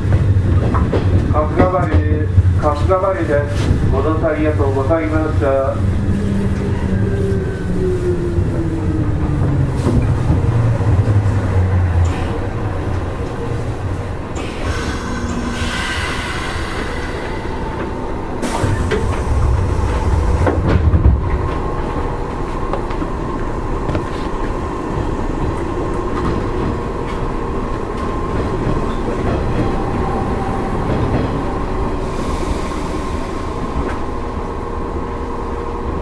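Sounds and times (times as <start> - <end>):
train wheels rumbling on rails: 0.0 - 36.0
high hiss or squeal: 14.7 - 17.8.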